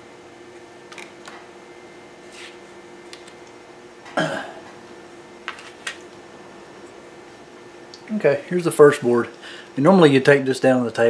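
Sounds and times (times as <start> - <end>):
faint steady hum: 0.0 - 11.0
person coughing: 4.2 - 4.7.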